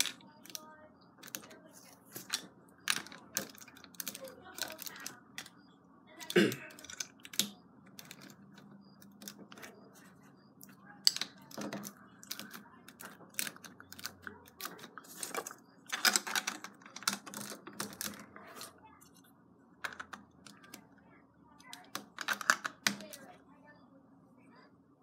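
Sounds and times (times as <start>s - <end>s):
plastic bricks clicking: 1.2s - 1.5s, 2.2s - 5.6s, 6.2s - 9.7s, 11.0s - 18.7s, 19.8s - 20.8s, 21.7s - 23.2s.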